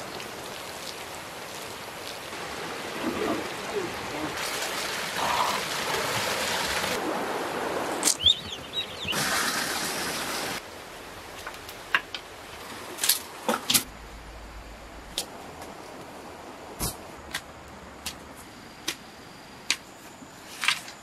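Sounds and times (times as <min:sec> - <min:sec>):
bird chirps: 0:08.1 - 0:09.2.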